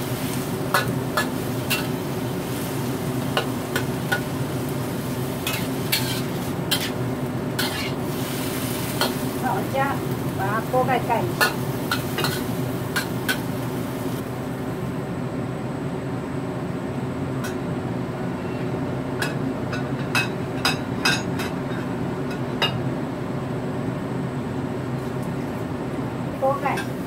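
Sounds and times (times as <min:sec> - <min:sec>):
frying hiss: 0:00.0 - 0:14.9, 0:26.3 - 0:27.0
low hum of gas stove: 0:00.0 - 0:27.0.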